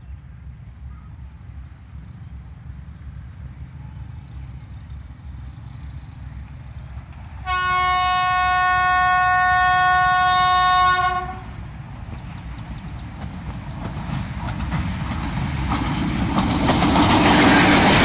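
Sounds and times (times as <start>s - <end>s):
train rumbling: 0.0s - 18.0s
locomotive horn blast: 7.4s - 11.6s.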